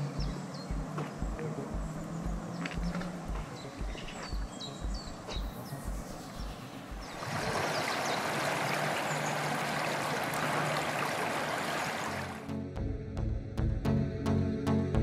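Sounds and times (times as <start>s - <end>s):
footsteps on paved path: 0.1s - 7.2s
river water pouring over rocks: 7.0s - 12.4s.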